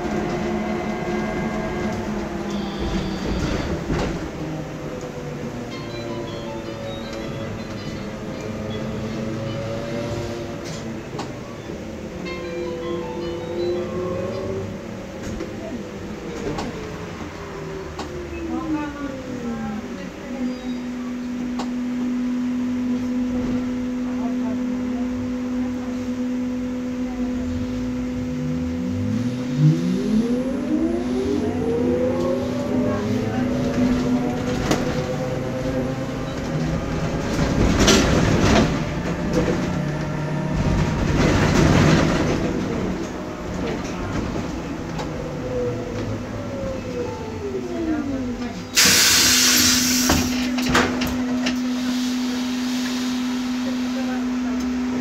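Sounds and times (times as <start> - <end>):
bus doors clunking: 0.0 - 18.2, 48.4 - 52.1
compressed air hiss: 48.8 - 50.2.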